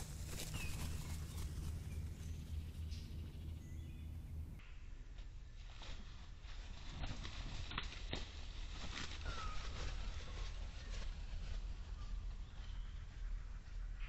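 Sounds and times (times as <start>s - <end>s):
wings flapping: 0.0s - 3.0s, 5.6s - 13.0s
steady low hum: 0.0s - 14.0s
faint bird chirps: 9.2s - 14.0s.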